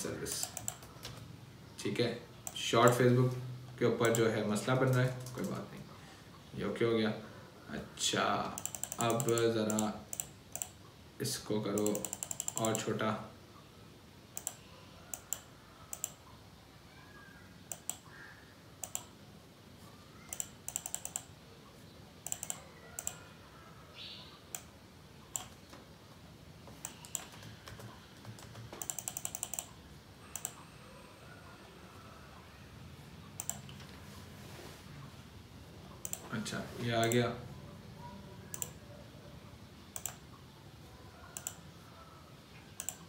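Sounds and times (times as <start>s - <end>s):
computer keyboard typing: 0.2s - 1.3s, 2.4s - 3.1s, 3.9s - 5.7s, 8.4s - 10.8s, 11.7s - 13.0s, 14.4s - 16.3s, 17.7s - 18.2s, 18.8s - 19.2s, 20.2s - 21.4s, 22.2s - 23.3s, 25.3s - 25.7s, 26.7s - 30.6s, 33.4s - 33.8s, 36.0s - 36.3s, 37.0s - 37.2s, 38.5s - 38.8s, 39.9s - 40.4s, 41.4s - 41.7s, 42.7s - 43.0s
single keyboard clicks: 42.8s - 43.0s.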